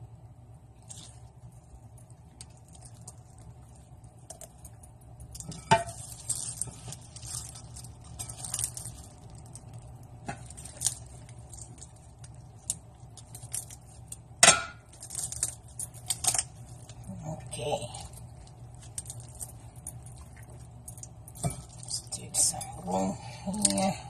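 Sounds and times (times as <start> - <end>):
steady low hum: 0.0 - 24.0
stuffing squishing and rustling: 0.8 - 24.0.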